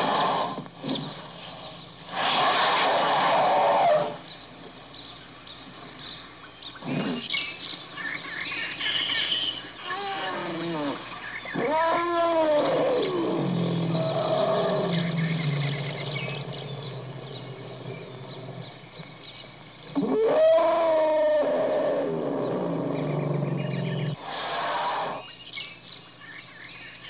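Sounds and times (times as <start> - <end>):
elephant calls: 2.1 - 4.2, 9.8 - 18.8, 19.9 - 25.3
low steady rumble: 13.2 - 20.0.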